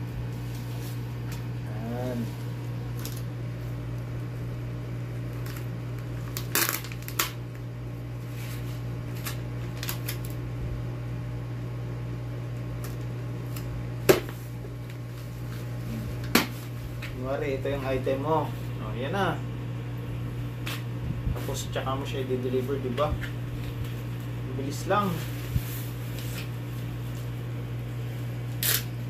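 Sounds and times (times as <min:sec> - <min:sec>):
steady low hum: 0:00.0 - 0:29.0
sticker label peeling crackles: 0:05.3 - 0:07.6, 0:09.1 - 0:10.4, 0:28.5 - 0:29.0.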